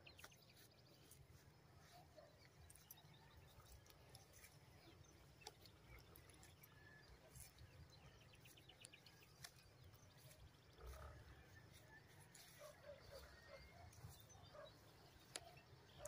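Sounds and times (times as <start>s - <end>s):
faint clicks: 15.2s - 15.6s.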